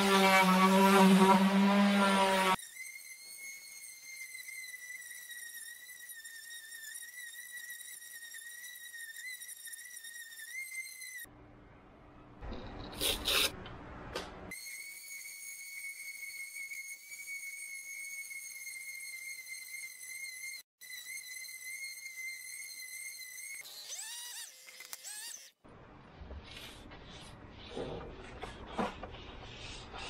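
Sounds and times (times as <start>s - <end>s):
orbital sander running: 0.0s - 11.3s, 14.5s - 25.5s
high whistling tone: 2.7s - 11.3s
scraping with clicks and rips: 23.7s - 25.6s.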